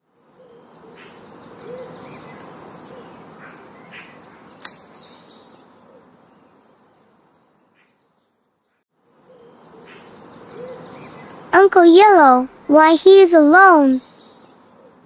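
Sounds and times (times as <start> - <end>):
wild birds chirping and calling: 0.3 - 8.2, 9.1 - 11.5
sharp click: 4.6 - 4.9.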